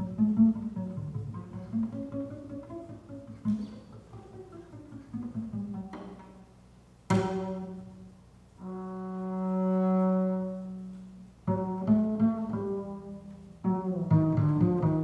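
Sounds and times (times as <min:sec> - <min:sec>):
double bass bowed note: 0:00.0 - 0:15.0
double bass plucked notes: 0:00.0 - 0:15.0.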